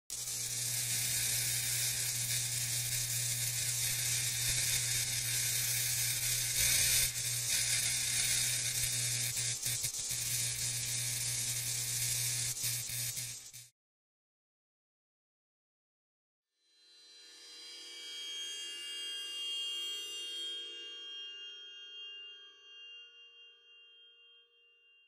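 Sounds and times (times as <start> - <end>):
electric arc crackling: 0.1 - 13.7.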